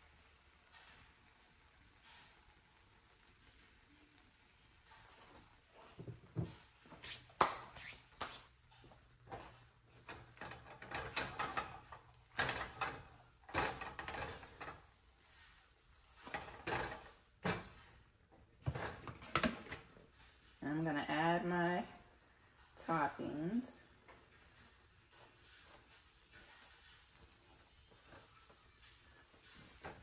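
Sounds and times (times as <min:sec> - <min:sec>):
spatula scraping frying pan: 0:06.7 - 0:18.0.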